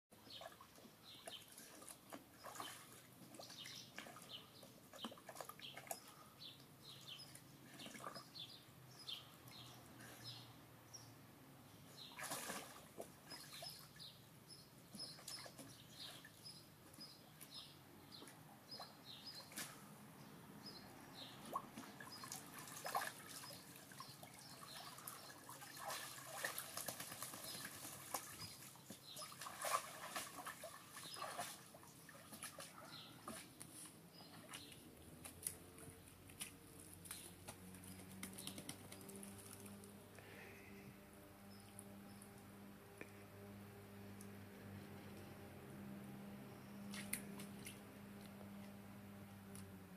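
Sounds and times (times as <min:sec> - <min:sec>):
birds chirping faintly: 0:00.1 - 0:49.8
dog splashing in water: 0:00.3 - 0:06.1, 0:12.1 - 0:13.8, 0:21.4 - 0:33.6.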